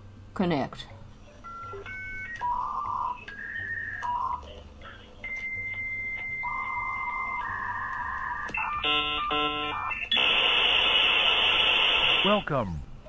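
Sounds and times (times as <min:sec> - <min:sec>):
dial-up modem tones and chirps: 0:01.4 - 0:10.3
static hiss: 0:10.2 - 0:12.8.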